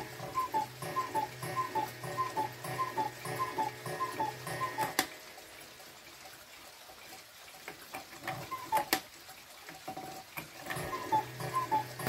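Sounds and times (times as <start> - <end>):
cuckoo clock call: 0.0 - 6.0, 8.2 - 9.1, 9.9 - 12.0
faint clock ticks: 0.0 - 6.4, 10.7 - 12.0.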